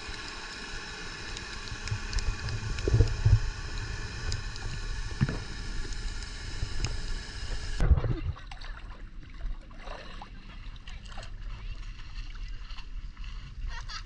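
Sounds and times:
underwater hiss: 0:00.0 - 0:07.8
low rumble: 0:00.0 - 0:08.9
sharp underwater clicks: 0:01.1 - 0:07.8.

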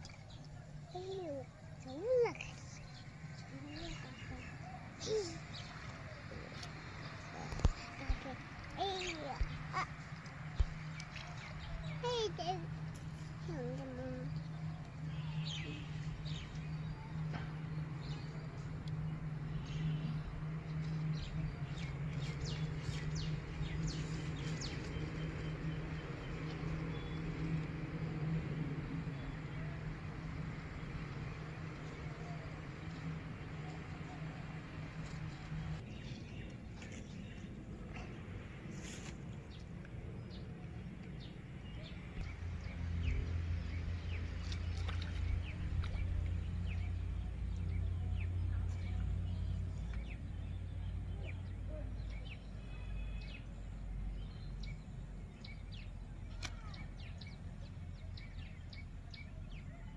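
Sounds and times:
small birds chirping: 0:00.0 - 0:27.8, 0:29.0 - 0:59.9.

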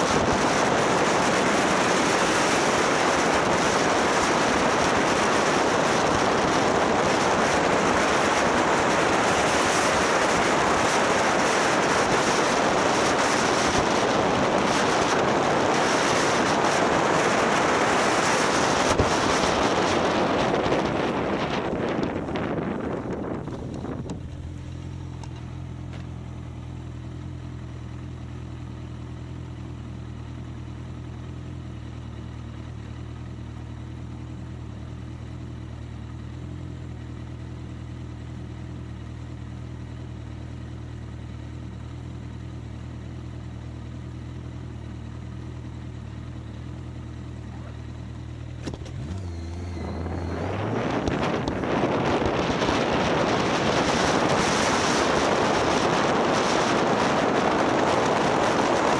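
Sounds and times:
wind on microphone: 0:00.0 - 0:24.5, 0:48.6 - 0:58.9
motorcycle engine: 0:00.0 - 0:58.9.

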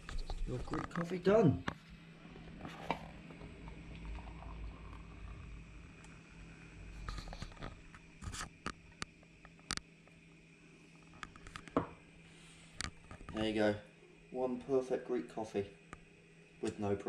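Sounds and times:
coffee pouring into glass cup: 0:02.4 - 0:06.2.

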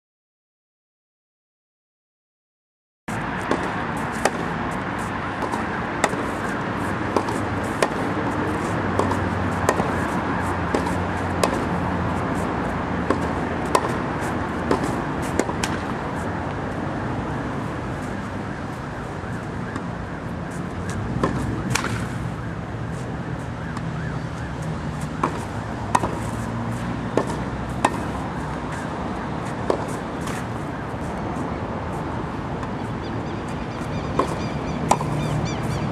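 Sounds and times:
tennis ball struck with racket: 0:03.4 - 0:16.0, 0:20.8 - 0:22.2, 0:24.9 - 0:30.7, 0:34.1 - 0:35.2.

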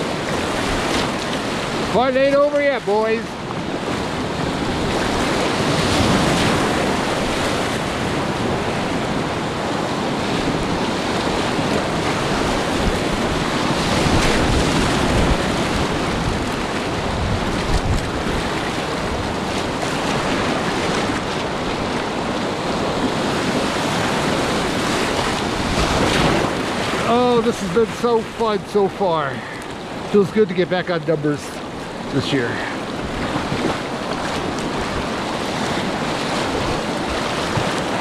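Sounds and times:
rapids rushing and splashing: 0:00.0 - 0:38.0
water splashing over camera: 0:10.4 - 0:38.0.

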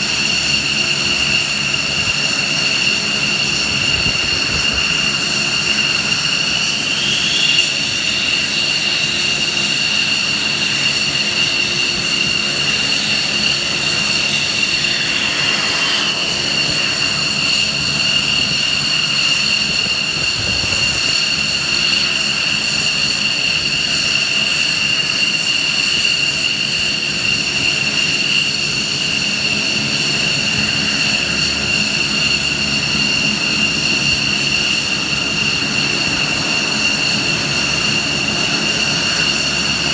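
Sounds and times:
turbine aircraft engines idling: 0:00.0 - 0:39.9.

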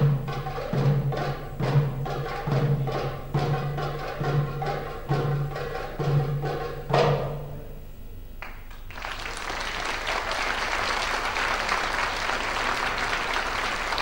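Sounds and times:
drum beat ringing: 0:00.0 - 0:08.4
audience applauding: 0:08.4 - 0:14.0.

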